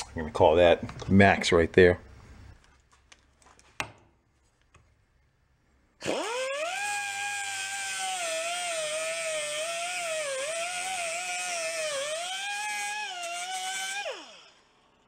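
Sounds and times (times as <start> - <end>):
air cut-off tool whining: 6.0 - 15.0.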